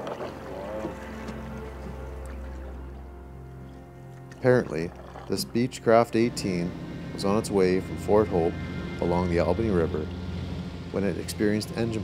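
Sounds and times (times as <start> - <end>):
low drone: 0.0 - 12.0
soft music with held notes: 0.0 - 12.0.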